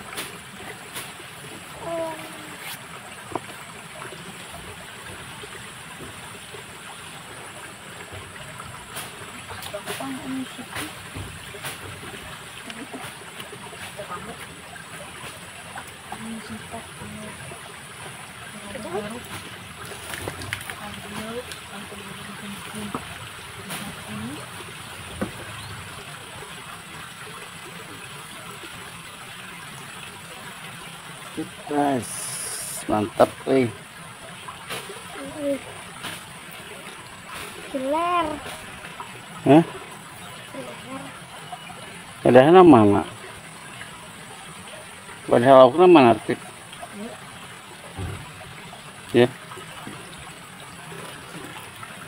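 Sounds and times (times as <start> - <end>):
small stream flowing: 0.0 - 52.0.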